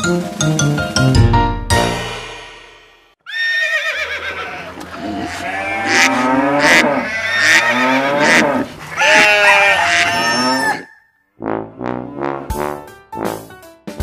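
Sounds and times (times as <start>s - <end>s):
rhythmic song intro: 0.0s - 3.2s, 11.4s - 14.0s
cartoon farm animal calls: 3.2s - 11.2s
cartoon cow mooing: 3.3s - 11.0s.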